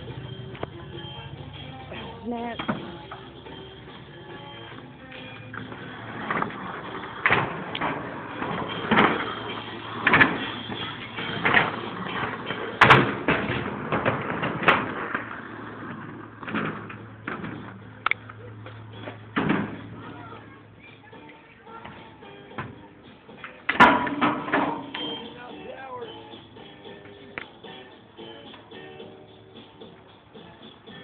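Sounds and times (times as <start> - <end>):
skateboard wheels rumbling: 0.0 - 22.4
skateboard clacks and thuds: 5.6 - 18.2.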